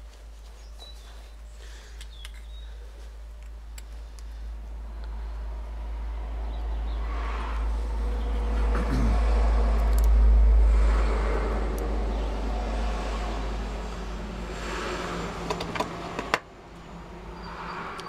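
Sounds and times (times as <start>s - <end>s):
low rumble: 4.4s - 15.4s.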